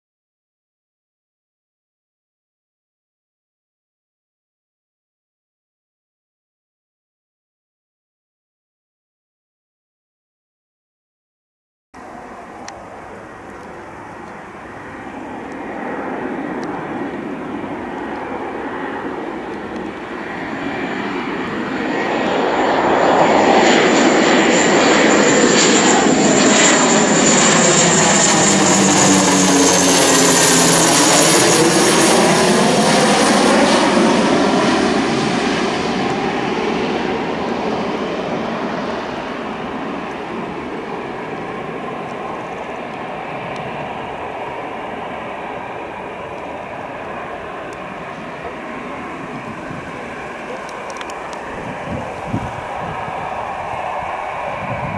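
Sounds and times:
turboprop aircraft drone: 0:12.0 - 0:54.9.

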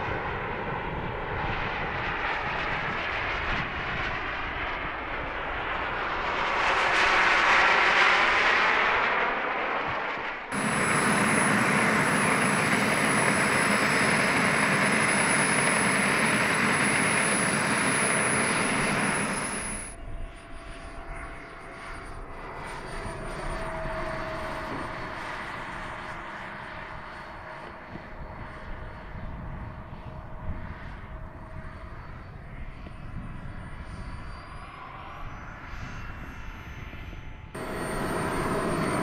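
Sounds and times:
distant model jet turbine: 0:00.0 - 0:39.0
model jet turbine whining: 0:10.5 - 0:20.2, 0:33.1 - 0:39.0.

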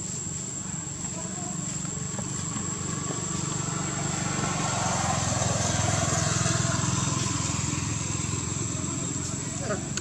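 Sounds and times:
small engine droning: 0:00.4 - 0:10.0.

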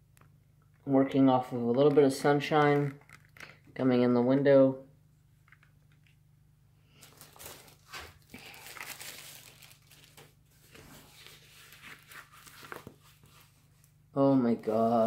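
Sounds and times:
plastic packaging crinkling: 0:02.5 - 0:03.7, 0:07.0 - 0:13.4.

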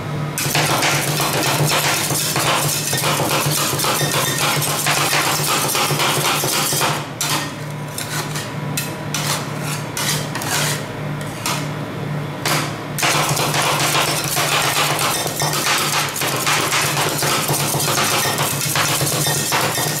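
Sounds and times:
metal spatulas scraping steel plate: 0:00.5 - 0:11.7, 0:13.3 - 0:20.0.

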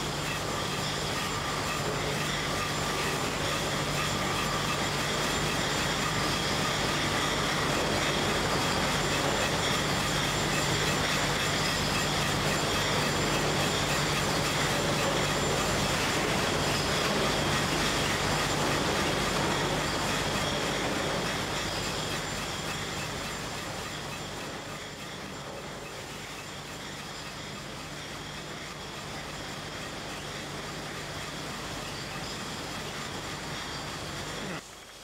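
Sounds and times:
constant low machine hum: 0:00.0 - 0:34.7.

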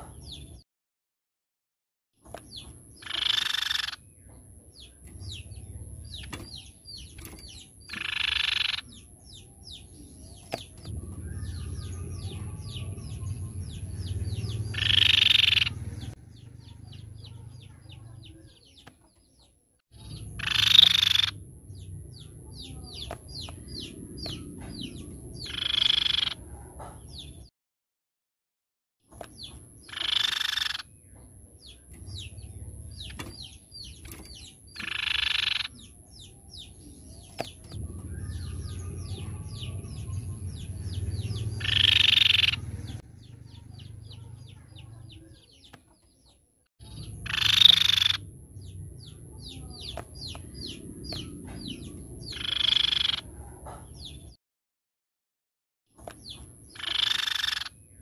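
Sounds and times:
bird harsh rattling call: 0:03.0 - 0:04.0, 0:07.1 - 0:08.9, 0:14.7 - 0:15.8, 0:20.3 - 0:21.4, 0:25.4 - 0:26.4, 0:29.8 - 0:30.9, 0:32.9 - 0:35.8, 0:41.3 - 0:42.7, 0:47.2 - 0:48.2, 0:52.3 - 0:53.3, 0:56.7 - 0:57.7.

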